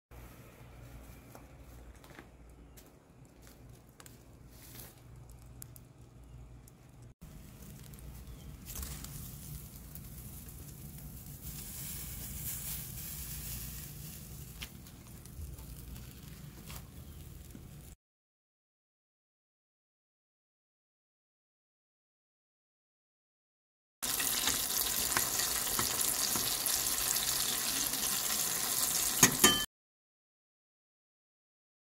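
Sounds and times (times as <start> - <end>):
coals crackling and popping: 1.9 - 18.0, 24.0 - 29.4
fire hiss: 8.7 - 15.3.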